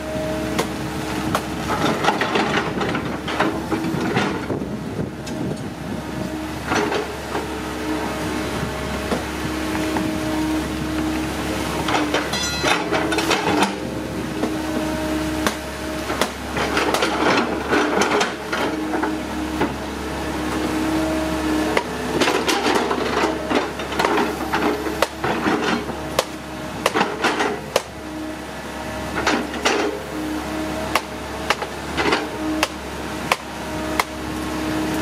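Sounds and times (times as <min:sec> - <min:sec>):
excavator diesel engine: 0:00.0 - 0:35.0
sharp knocks and clanks: 0:11.9 - 0:13.8.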